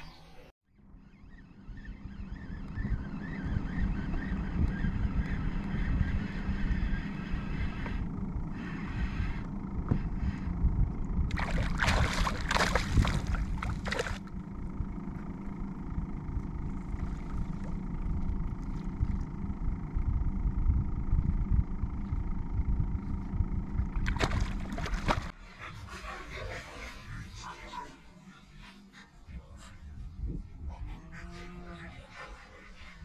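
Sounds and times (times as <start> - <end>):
steady low rumble: 0.7 - 33.0
fish splashing in water: 11.3 - 14.2, 24.1 - 25.3.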